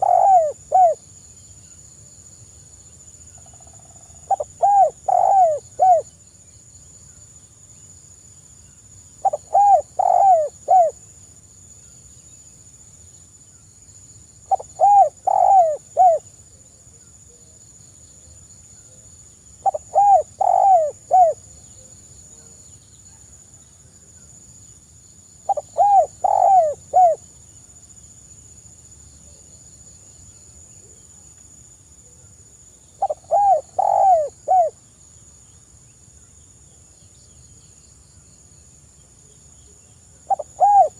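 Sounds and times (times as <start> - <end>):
dove cooing: 0.0 - 1.0, 4.3 - 6.1, 9.2 - 11.0, 14.5 - 16.3, 19.6 - 21.5, 25.5 - 27.2, 33.0 - 34.8, 40.3 - 40.9.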